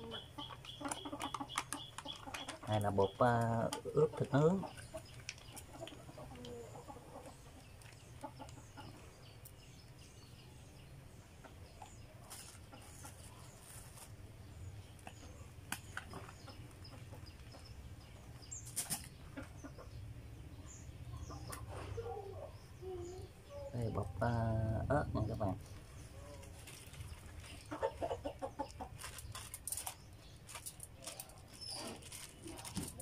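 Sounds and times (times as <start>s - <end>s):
chickens clucking: 0.0s - 33.0s.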